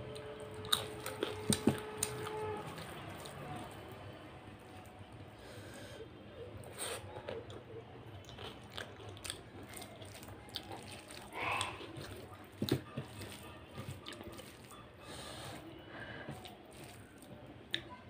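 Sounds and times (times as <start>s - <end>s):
fingers squelching wet rice: 8.5s - 15.4s, 16.4s - 17.4s.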